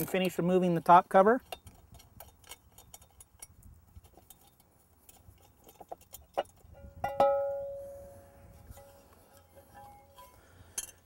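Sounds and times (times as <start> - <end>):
metallic clicks of screws: 1.4 - 6.7
metal guard clanking and ringing: 5.6 - 8.0, 8.7 - 11.0.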